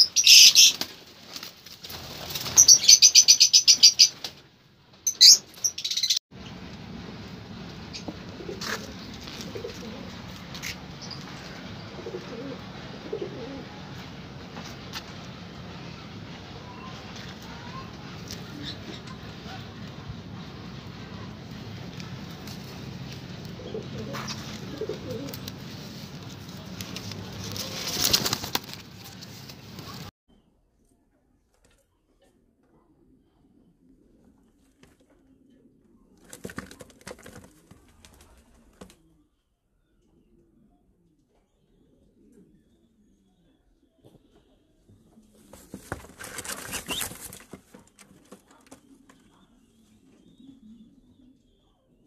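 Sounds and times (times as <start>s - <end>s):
pigeons rustling and scuffling: 0.2s - 2.9s, 6.8s - 15.7s, 16.8s - 30.1s, 36.1s - 39.1s, 44.0s - 50.4s
rustle: 5.6s - 15.3s
pigeons cooing: 8.0s - 10.8s, 11.4s - 14.1s, 22.8s - 26.4s
pigeons cooing softly: 8.0s - 14.2s, 22.8s - 26.7s, 31.8s - 52.0s.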